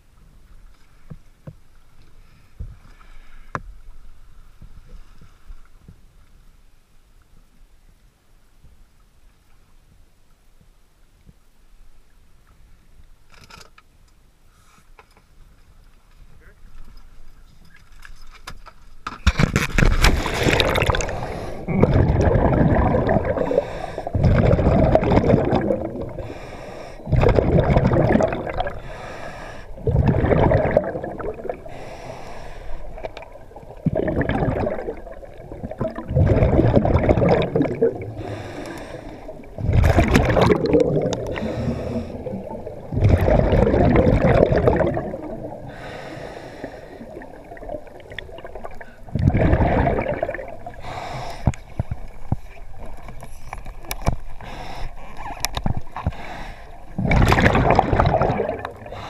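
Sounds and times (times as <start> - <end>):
gurgling exhaled bubbles: 19.8 - 53.3, 56.9 - 59.0
scuba regulator breathing hiss: 23.4 - 24.2, 26.2 - 27.1, 28.8 - 29.8, 31.6 - 33.0, 38.1 - 39.5, 41.3 - 42.4, 45.6 - 47.2, 50.8 - 51.6, 54.4 - 55.0, 56.0 - 56.8.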